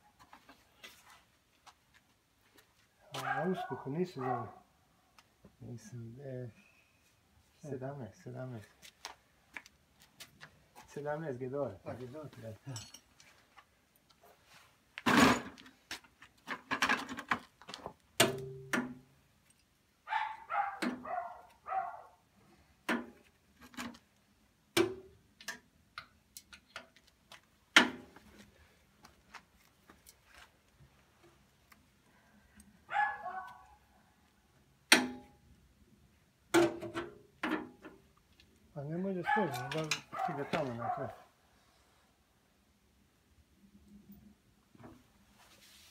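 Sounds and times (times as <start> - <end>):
wrench clinking on metal: 39.5 - 40.3.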